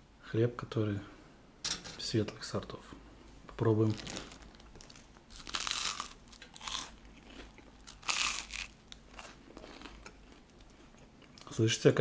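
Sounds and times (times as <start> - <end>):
toast crunching: 3.8 - 11.5
person chewing: 4.1 - 11.5.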